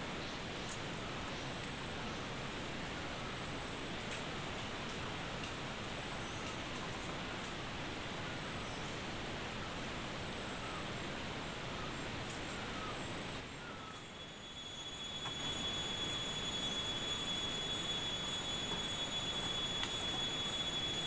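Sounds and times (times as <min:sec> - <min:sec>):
forest ambience hiss: 0:00.0 - 0:21.0.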